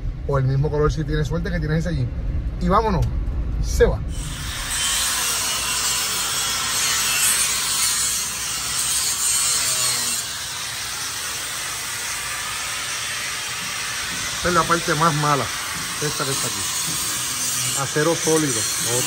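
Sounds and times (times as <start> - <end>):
tool rasping and scraping: 4.1 - 19.0.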